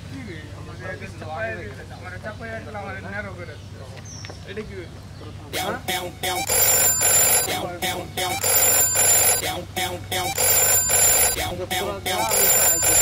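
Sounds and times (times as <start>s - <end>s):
mobile phone ringing: 5.6s - 13.0s.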